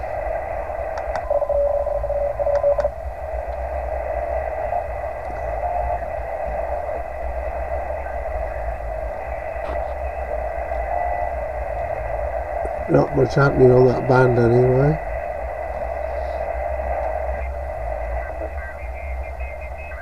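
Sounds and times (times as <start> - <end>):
radio hiss and band noise: 0.0 - 20.0
steady lower tone: 0.0 - 20.0
faint high whistle: 4.7 - 6.2.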